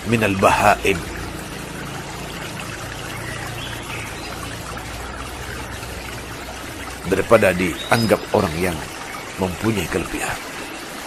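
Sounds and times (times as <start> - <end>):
low steady hum: 0.0 - 8.0
rushing water-like noise: 0.0 - 11.0.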